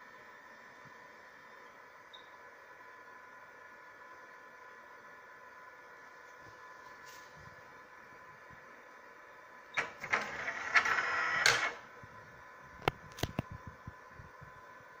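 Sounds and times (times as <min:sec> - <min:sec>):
carrier motor whirring: 0:09.8 - 0:11.9.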